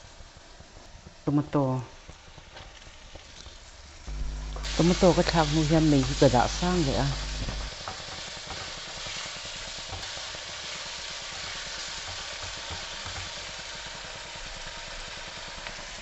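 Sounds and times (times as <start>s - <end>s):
tomatoes sizzling in a pan: 0.0s - 16.0s
spatula scraping and tapping: 7.4s - 9.2s, 11.3s - 13.3s.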